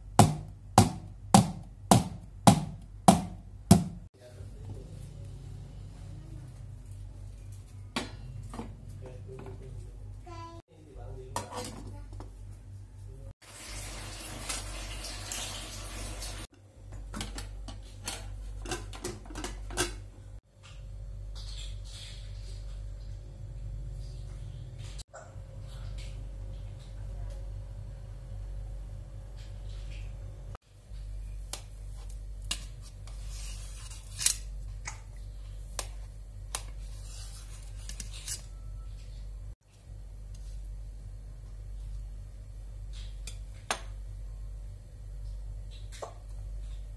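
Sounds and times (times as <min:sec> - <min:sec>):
steady low hum: 0:22.4 - 0:46.9
knife scraping metal cake pan: 0:32.6 - 0:34.4, 0:36.8 - 0:38.7.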